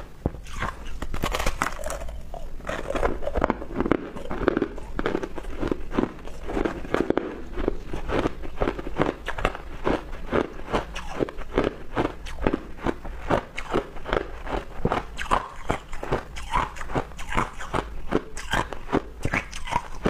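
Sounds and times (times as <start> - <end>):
crushed ice crunching: 0.6 - 10.0.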